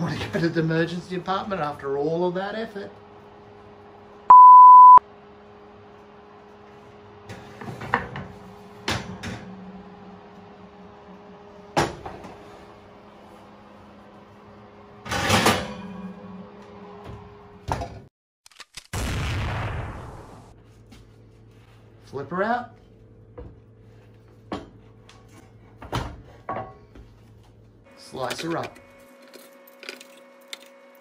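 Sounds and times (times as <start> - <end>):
electronic beep: 4.3 - 5.0.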